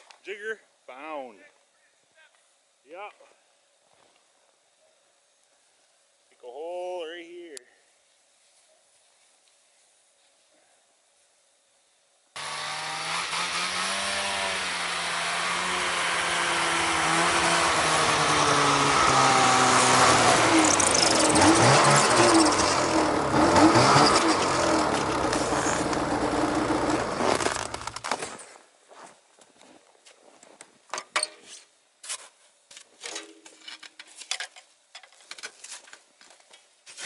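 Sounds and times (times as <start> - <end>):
snowmobile engine revving: 12.4 - 28.0.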